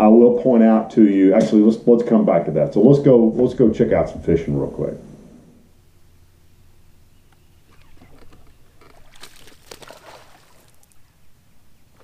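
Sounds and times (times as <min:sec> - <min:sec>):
faint low hum: 0:00.0 - 0:12.0
water splashing beside a boat: 0:07.7 - 0:11.1.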